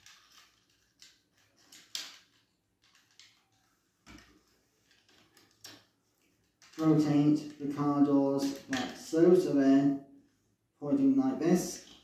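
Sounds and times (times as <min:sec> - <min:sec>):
plastic toy clicking and knocking: 0:00.0 - 0:03.5.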